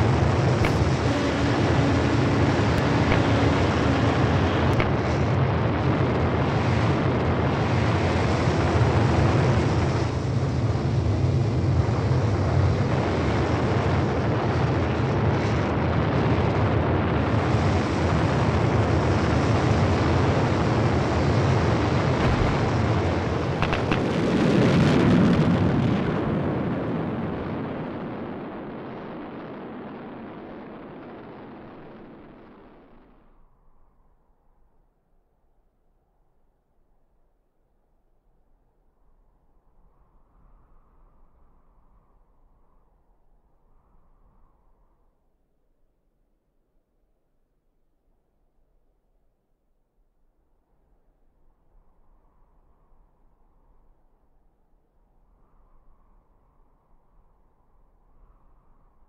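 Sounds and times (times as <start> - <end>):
rocket thrusters rumbling: 0.0 - 7.9, 21.6 - 29.9
sharp clicks: 22.2 - 24.2.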